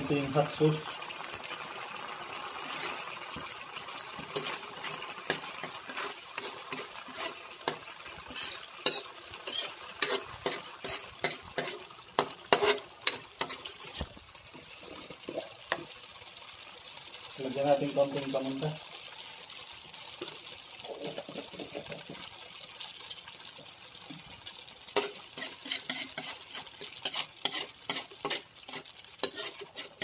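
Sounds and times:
frying sizzle: 0:00.0 - 0:30.0
spoon scraping a wok: 0:04.2 - 0:14.1, 0:25.0 - 0:30.0.

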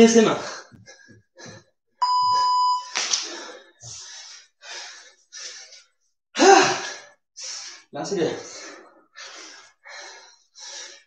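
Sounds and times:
electronic beep: 0:02.0 - 0:02.9
person breathing hard: 0:03.2 - 0:05.9, 0:06.8 - 0:11.0.

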